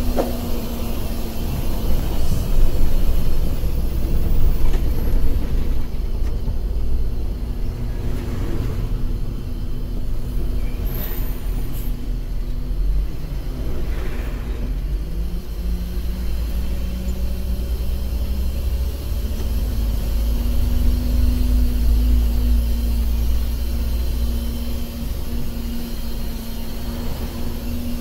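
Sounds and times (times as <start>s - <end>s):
bus engine and road rumble: 0.0s - 28.0s
passing vehicle whooshes: 7.5s - 10.6s, 26.7s - 28.0s.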